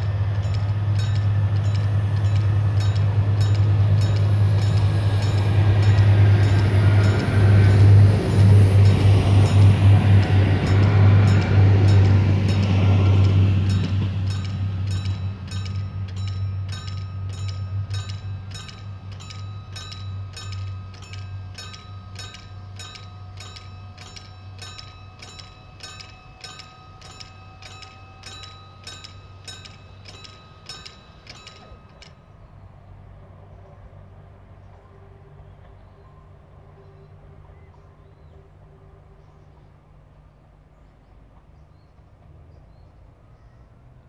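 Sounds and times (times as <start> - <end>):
railcar diesel engine: 0.0 - 44.0
level crossing bell ringing: 8.8 - 32.4.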